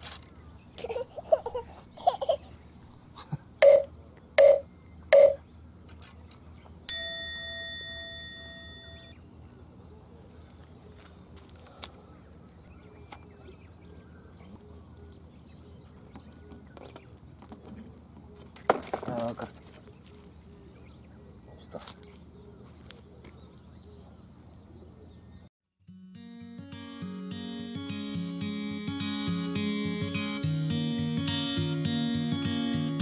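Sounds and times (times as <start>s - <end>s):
faint outdoor background: 0.0s - 33.0s
bell-like chime: 6.9s - 9.2s.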